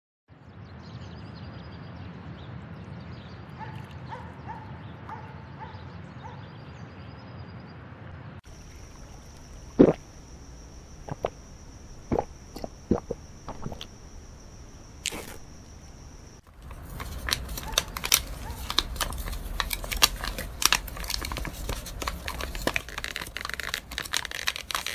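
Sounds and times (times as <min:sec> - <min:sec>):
faint chirps: 0:08.5 - 0:16.4.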